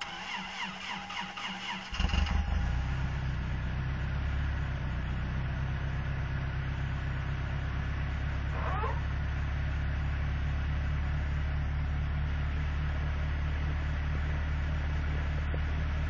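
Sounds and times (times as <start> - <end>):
engine starter cranking: 0.0 - 3.0
truck engine idling: 0.0 - 16.0.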